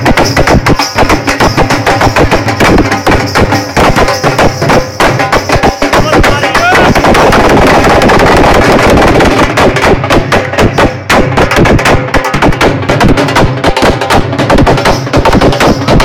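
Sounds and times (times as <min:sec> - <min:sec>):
drums beaten fast: 0:00.0 - 0:16.0.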